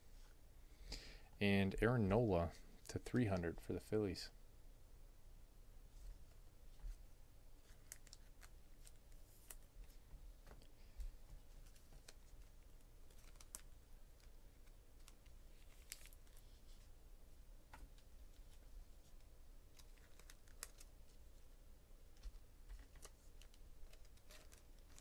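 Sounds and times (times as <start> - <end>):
trading cards being shuffled: 22.2 - 25.0.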